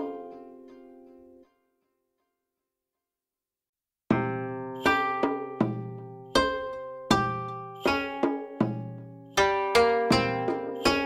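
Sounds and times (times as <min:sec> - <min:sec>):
plucked string instrument melody: 0:00.0 - 0:01.7, 0:04.1 - 0:11.0.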